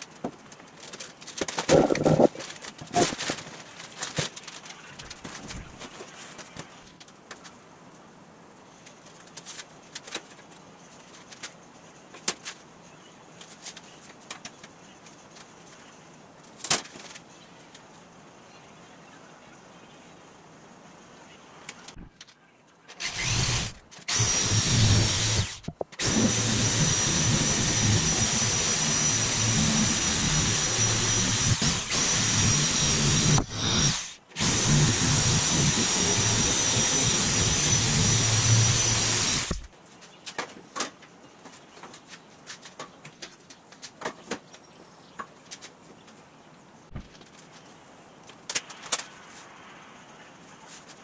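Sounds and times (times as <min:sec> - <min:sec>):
power tool cutting sheet metal: 0:23.0 - 0:39.7.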